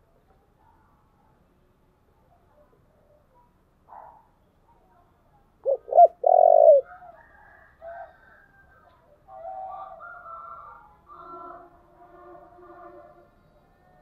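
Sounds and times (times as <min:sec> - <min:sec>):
dove cooing: 0:05.6 - 0:06.9
faint bird calls: 0:05.6 - 0:07.2.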